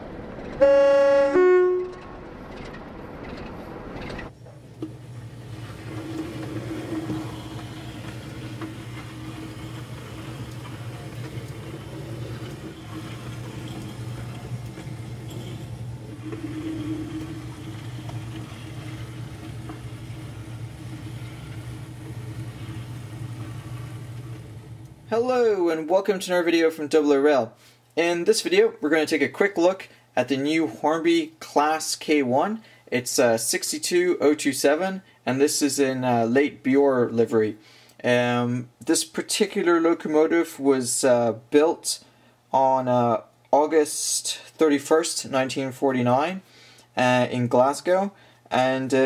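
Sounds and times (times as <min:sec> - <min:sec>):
two-note train horn: 0:00.6 - 0:02.1
model train motor humming: 0:04.8 - 0:25.0.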